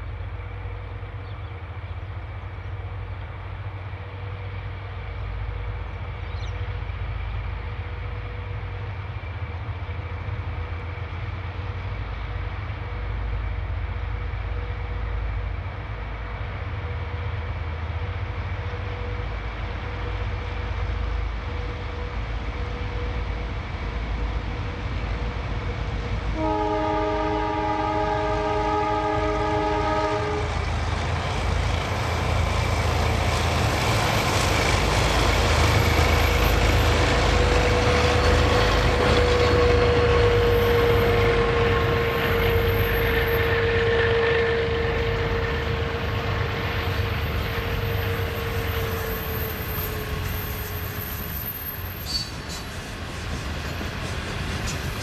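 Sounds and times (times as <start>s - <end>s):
diesel locomotive engines: 0.0s - 55.0s
train wheels rolling: 23.6s - 55.0s
train horn chord: 26.3s - 30.7s, 36.8s - 51.1s
wheel squeal: 47.8s - 52.8s.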